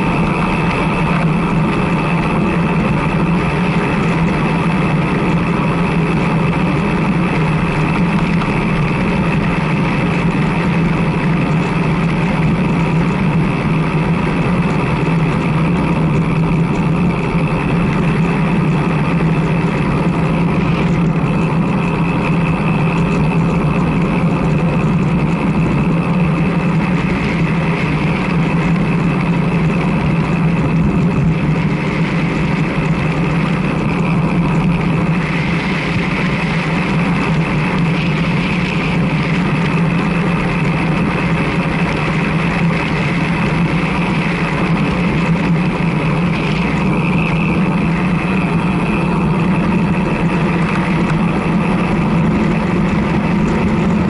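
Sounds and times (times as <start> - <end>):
road noise: 0.0 - 54.0
wind on microphone: 0.0 - 54.0.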